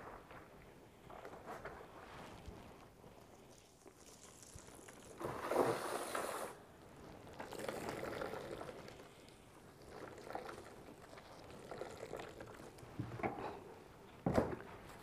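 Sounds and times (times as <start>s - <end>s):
water pouring onto plants: 2.6s - 6.6s.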